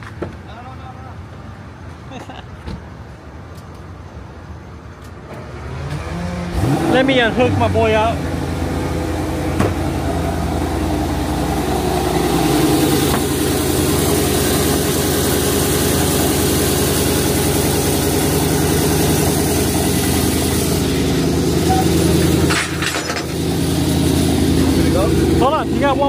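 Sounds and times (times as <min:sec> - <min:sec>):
vehicle engine idling: 0:06.6 - 0:26.0.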